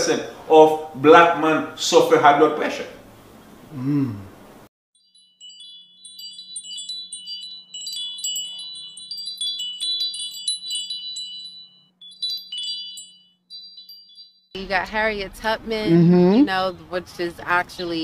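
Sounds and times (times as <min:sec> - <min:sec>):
chimes tinkling: 0:05.0 - 0:14.6.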